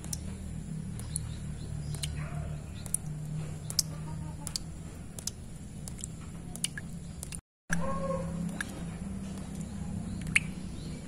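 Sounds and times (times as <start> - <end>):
water drops plinking into puddle: 0.0 - 0.3, 0.9 - 2.2, 2.8 - 7.8, 8.4 - 8.8, 10.2 - 10.6.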